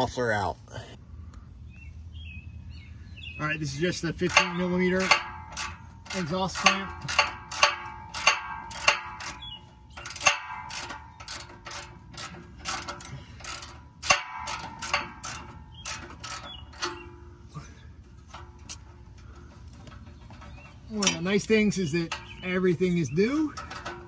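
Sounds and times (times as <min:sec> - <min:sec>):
hand ratchet clicking: 0:04.2 - 0:17.2.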